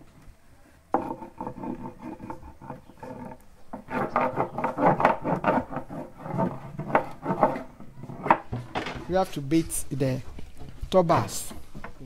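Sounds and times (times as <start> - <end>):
hand scraping wooden box: 1.0 - 9.4.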